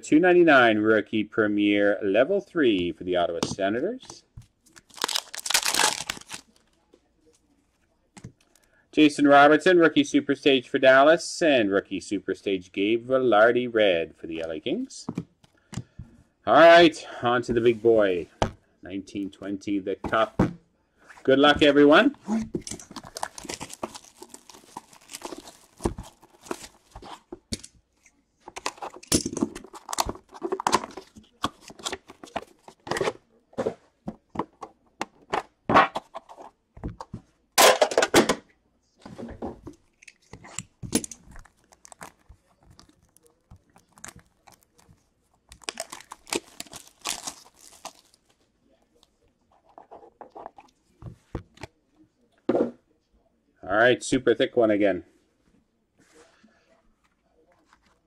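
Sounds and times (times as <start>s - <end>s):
cards being handled: 4.1s - 7.4s, 21.3s - 27.6s, 28.5s - 33.2s, 39.7s - 51.7s
plastic shrink wrap crinkling: 4.6s - 6.8s, 22.7s - 27.3s, 29.6s - 32.8s, 40.6s - 49.1s.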